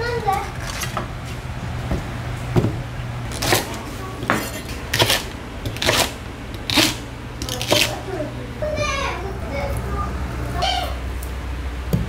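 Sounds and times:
low steady hum: 0.0s - 12.0s
knife cutting on wooden board: 3.3s - 7.9s.

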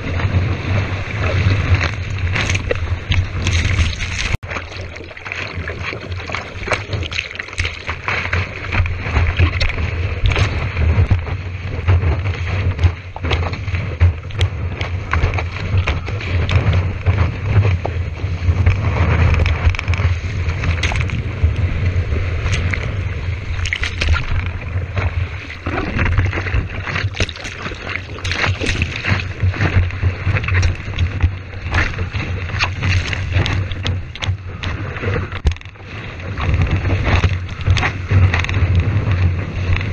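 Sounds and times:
sharp water splashes: 0.0s - 11.4s, 22.4s - 34.7s
seawater rushing and splashing: 0.0s - 39.9s
wind buffeting microphone: 0.0s - 39.9s.

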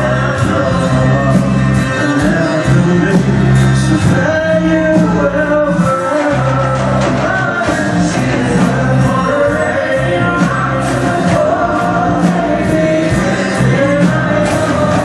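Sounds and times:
electric guitar: 0.0s - 15.0s
steady drum beat: 0.0s - 15.0s
upright double bass: 0.0s - 15.0s
woman and man singing: 0.0s - 15.0s.

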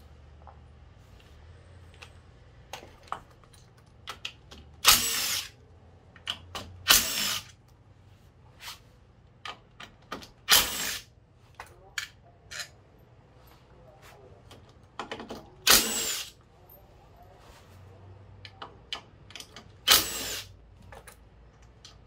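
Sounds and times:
tools and bolts clinking: 11.6s - 12.9s
cordless driver spinning bolts: 19.8s - 20.5s.

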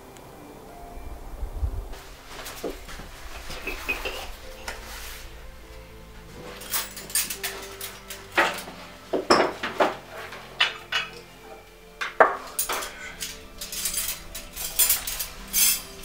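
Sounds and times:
stove door opening: 2.0s - 5.3s, 6.2s - 16.0s
metal poker raking wood: 12.0s - 16.0s.

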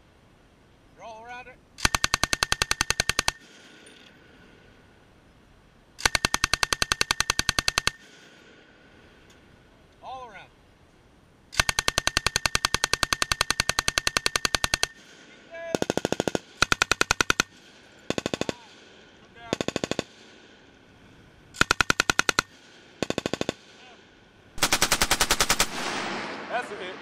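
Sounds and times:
machine guns firing bursts: 1.8s - 3.7s, 6.0s - 8.3s, 11.6s - 18.8s, 19.4s - 20.3s, 21.6s - 23.8s, 24.6s - 27.0s.

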